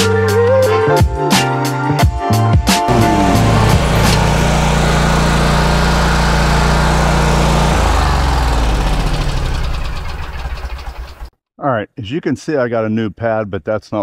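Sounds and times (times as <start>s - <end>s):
mower engine running: 2.9s - 11.3s.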